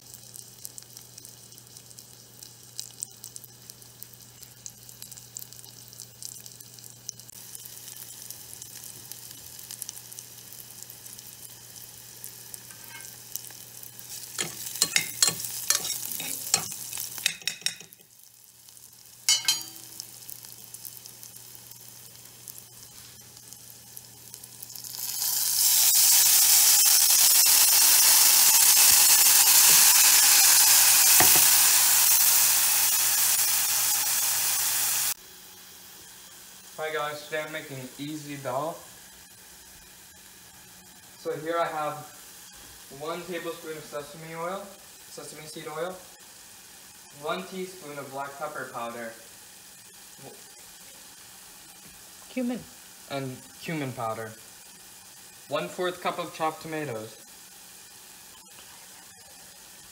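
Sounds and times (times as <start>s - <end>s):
food sizzling in oil: 0.0s - 59.9s
metal spoon scraping pot: 14.4s - 17.9s.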